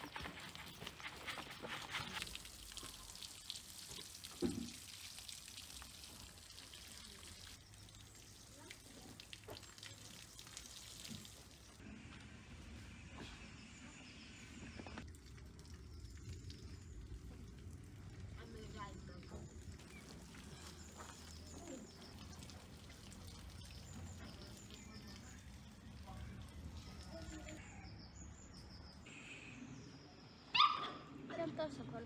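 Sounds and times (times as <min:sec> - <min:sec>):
water sprinkling onto soil: 0:00.0 - 0:11.8, 0:14.9 - 0:27.6.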